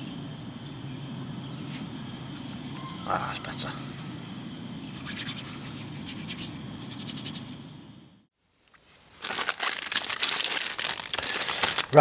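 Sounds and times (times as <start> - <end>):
plastic packaging crinkling: 9.2 - 12.0.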